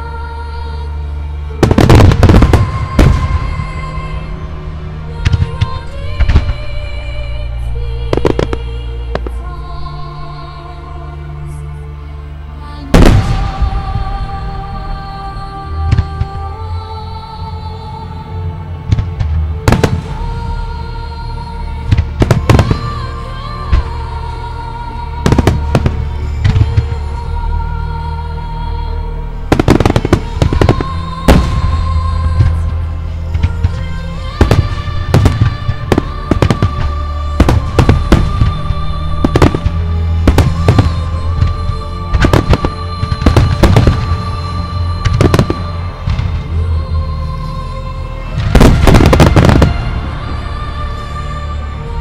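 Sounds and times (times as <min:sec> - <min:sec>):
music: 0:00.0 - 0:52.0
fireworks bursting: 0:01.6 - 0:03.6, 0:08.1 - 0:09.4, 0:12.9 - 0:13.7, 0:18.9 - 0:20.2, 0:29.5 - 0:33.8, 0:34.4 - 0:44.3, 0:45.0 - 0:46.5, 0:48.4 - 0:50.2.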